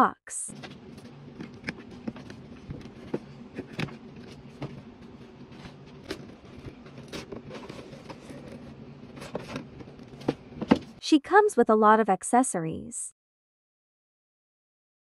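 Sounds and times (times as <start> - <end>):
cardboard box being opened: 1.6 - 10.8.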